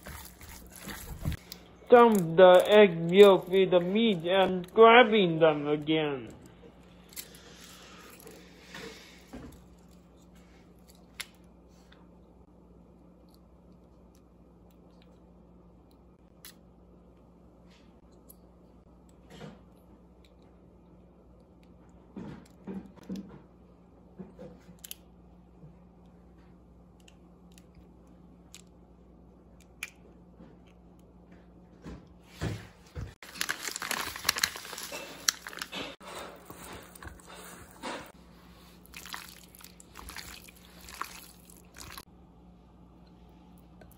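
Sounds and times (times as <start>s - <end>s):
plastic packaging crinkling: 0.0s - 4.2s, 33.2s - 37.8s, 38.8s - 42.0s
faint room hum: 0.0s - 43.9s.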